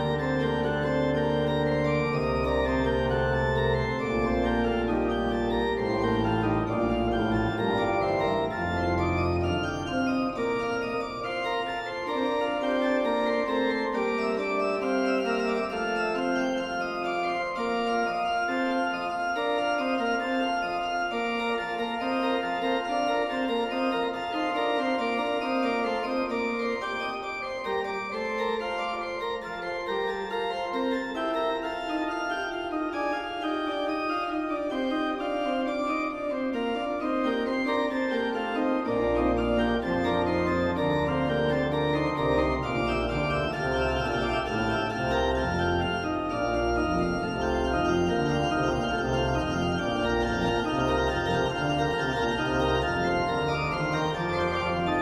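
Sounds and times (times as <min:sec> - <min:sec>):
organ chords: 0:00.0 - 0:55.0
deep organ bass notes: 0:38.8 - 0:55.0.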